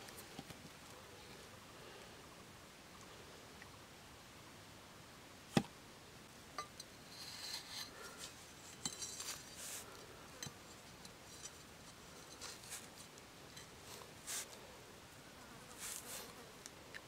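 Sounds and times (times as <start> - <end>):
machete scraping wood: 7.1 - 8.2.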